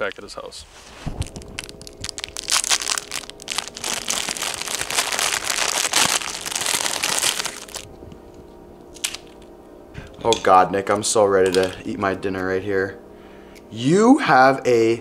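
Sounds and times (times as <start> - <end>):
plastic wrapper crinkling: 1.0 - 7.9.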